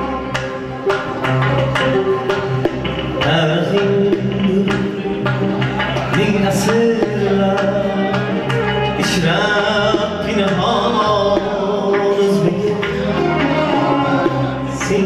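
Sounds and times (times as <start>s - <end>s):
bass line: 0.0s - 15.0s
plucked lute: 0.0s - 15.0s
man singing: 3.1s - 15.0s.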